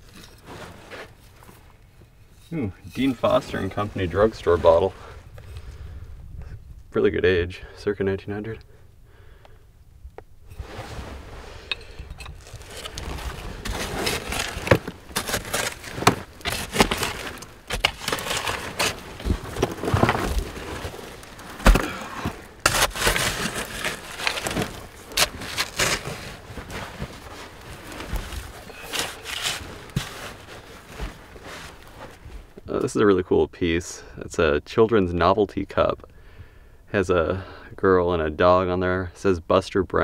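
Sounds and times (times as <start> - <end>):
digging scraping: 0.0 - 5.7, 10.5 - 32.7.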